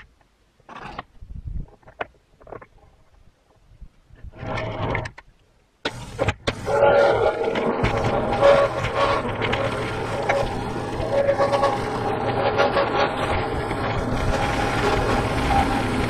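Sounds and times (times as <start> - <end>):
band sawmill running: 6.5 - 16.0.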